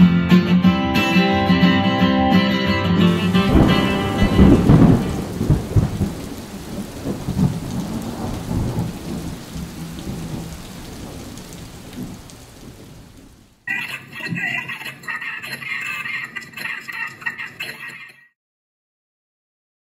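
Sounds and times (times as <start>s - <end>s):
thunder rumbling: 3.2s - 13.6s
steady rain: 3.2s - 18.0s.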